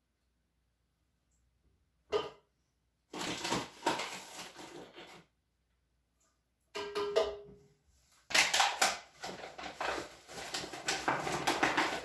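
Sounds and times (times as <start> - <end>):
paper bag crinkling: 3.1 - 5.2, 8.3 - 12.0.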